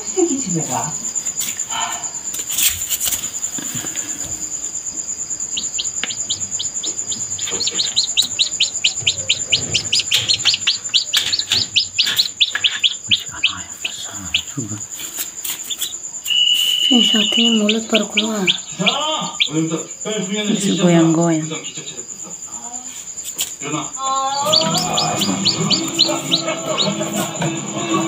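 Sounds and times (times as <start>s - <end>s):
chick peeping: 2.6s - 22.0s, 23.9s - 28.0s
high-pitched whine: 24.4s - 28.0s.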